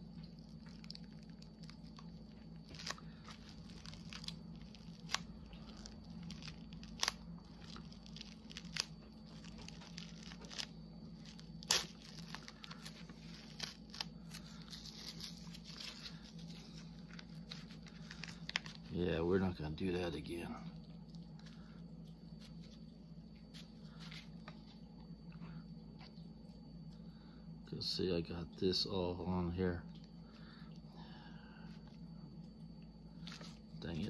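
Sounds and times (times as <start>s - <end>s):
cling wrap crinkling and tearing: 0.0s - 19.0s.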